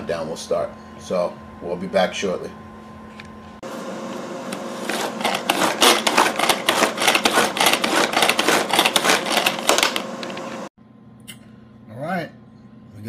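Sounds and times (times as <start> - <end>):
food chopper blades rattling: 4.5 - 10.7.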